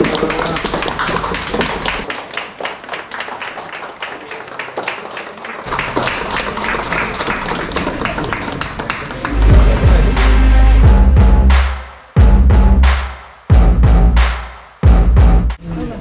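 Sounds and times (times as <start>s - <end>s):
group of people clapping: 0.0s - 10.5s.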